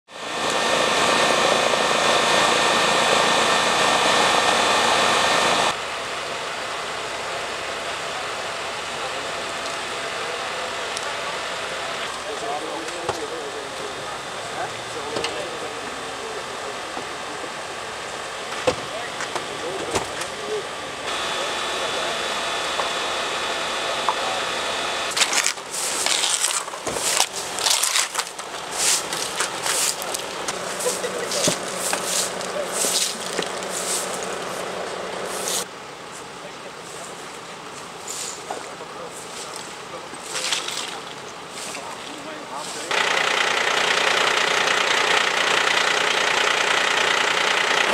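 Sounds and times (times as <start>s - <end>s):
rescue equipment engine drone: 0.1s - 47.9s
debris and broken glass crunching: 25.1s - 33.6s.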